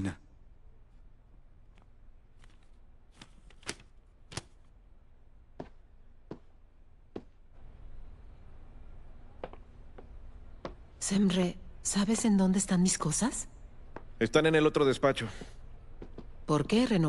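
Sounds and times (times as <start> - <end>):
heel clicks on hard floor: 7.1 - 7.4.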